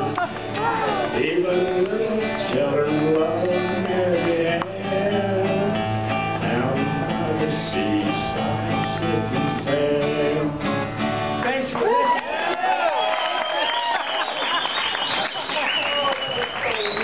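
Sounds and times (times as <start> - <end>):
acoustic guitar strumming: 0.0 - 11.8.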